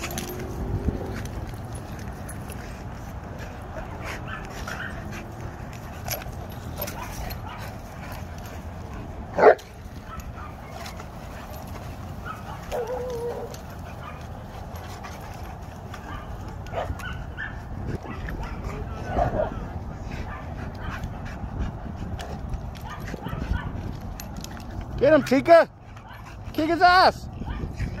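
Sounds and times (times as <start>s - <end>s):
dog barking: 9.4s - 10.5s, 22.8s - 23.7s
dog whining: 12.7s - 13.6s.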